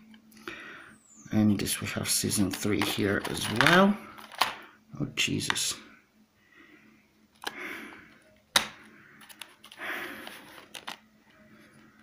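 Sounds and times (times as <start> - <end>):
plastic disc case clicks: 2.5 - 4.6, 8.5 - 11.0.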